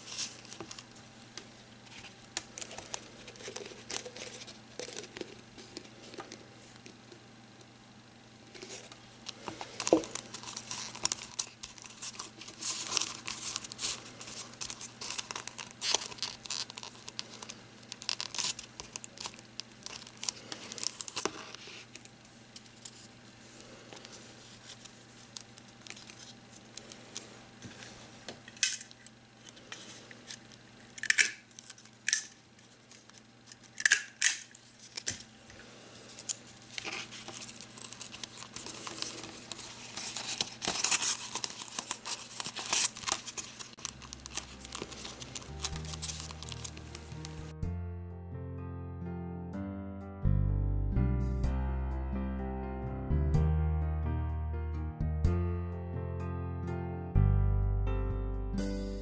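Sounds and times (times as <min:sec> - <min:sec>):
paper crinkling and rustling: 0:00.0 - 0:06.9, 0:08.5 - 0:35.3, 0:36.0 - 0:47.5.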